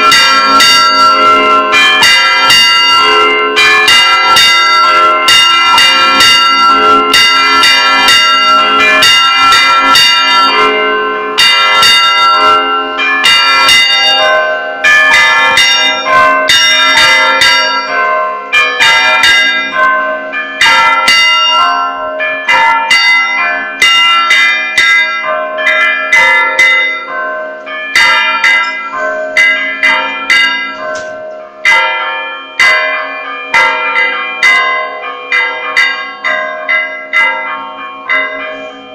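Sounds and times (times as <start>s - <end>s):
church bells rung rapidly: 0.0s - 38.9s.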